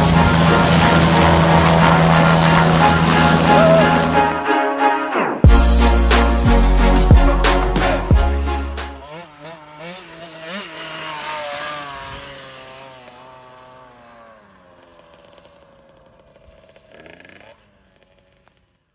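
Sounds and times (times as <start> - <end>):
dirt bike engine revving: 0.0 - 4.5, 5.4 - 18.9
music: 0.0 - 9.0.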